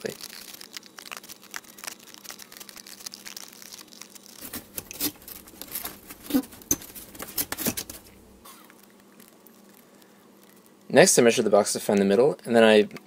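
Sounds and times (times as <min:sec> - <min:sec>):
cardboard being cut: 0:04.4 - 0:08.1.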